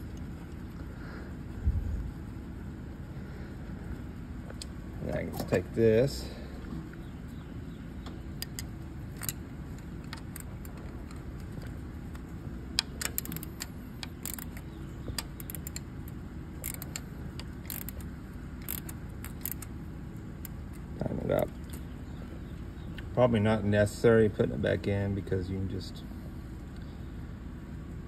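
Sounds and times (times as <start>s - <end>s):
low background hum: 0.0s - 28.0s
wrench and nuts clinking: 12.8s - 15.9s, 16.6s - 18.0s, 18.6s - 19.7s.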